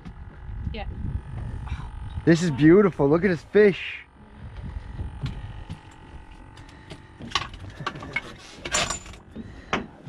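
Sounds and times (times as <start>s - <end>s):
low steady rumble: 0.0s - 9.8s
knocks and scraping rubs: 4.5s - 10.0s.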